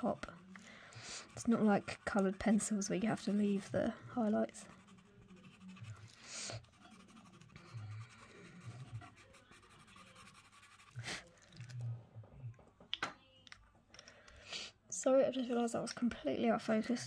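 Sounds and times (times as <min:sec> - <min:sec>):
pencil scratching on paper: 0:00.0 - 0:11.3.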